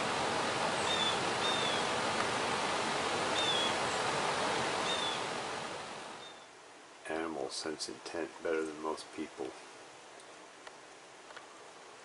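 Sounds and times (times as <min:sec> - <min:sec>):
steady rushing outdoor noise: 0:00.0 - 0:12.0
small bird chirping: 0:00.8 - 0:01.9, 0:03.4 - 0:03.8, 0:04.8 - 0:05.3, 0:06.2 - 0:06.5.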